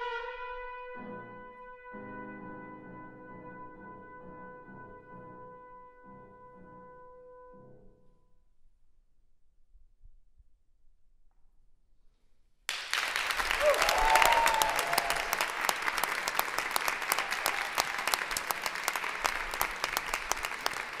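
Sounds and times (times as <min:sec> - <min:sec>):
audience applause: 0:12.7 - 0:21.0
person cheering: 0:13.4 - 0:16.2, 0:16.9 - 0:18.5.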